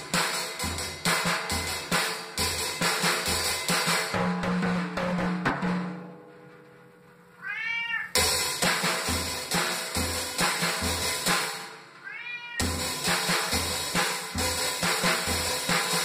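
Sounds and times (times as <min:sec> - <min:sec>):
drum kit playing: 0:00.0 - 0:16.0
cat meowing: 0:07.4 - 0:08.2, 0:12.0 - 0:12.8.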